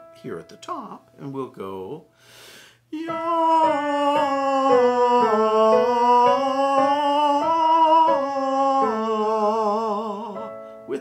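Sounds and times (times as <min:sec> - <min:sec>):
man singing vocal warm-up: 0:02.9 - 0:11.0.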